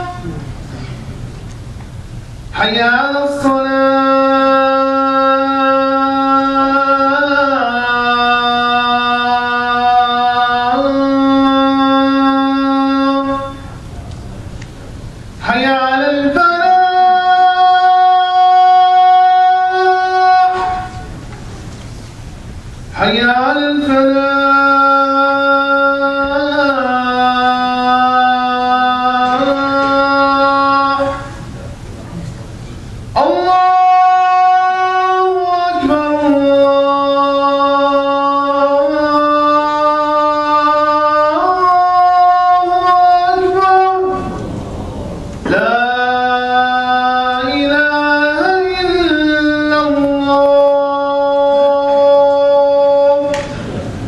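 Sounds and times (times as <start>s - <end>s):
man chanting call to prayer: 0.0s - 0.5s, 2.5s - 13.9s, 15.4s - 21.1s, 22.9s - 31.9s, 33.1s - 53.8s.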